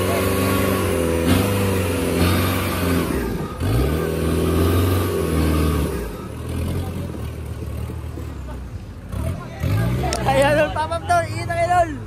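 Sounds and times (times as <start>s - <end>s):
vehicle engine revving: 0.0s - 11.9s.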